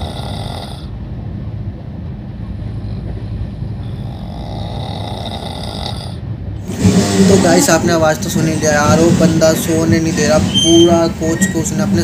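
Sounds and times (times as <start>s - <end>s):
man snoring loudly: 0.0s - 0.9s, 4.0s - 7.7s
train rumble: 0.0s - 12.0s.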